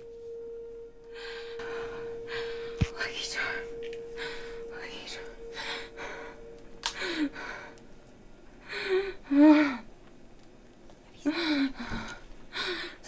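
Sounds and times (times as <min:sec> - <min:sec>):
woman gasping: 0:01.1 - 0:07.8
woman moaning: 0:01.1 - 0:07.8, 0:08.6 - 0:09.9, 0:11.2 - 0:13.0.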